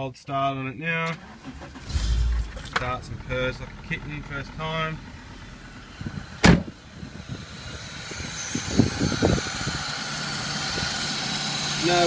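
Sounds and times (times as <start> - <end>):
van engine idling: 1.2 - 12.0.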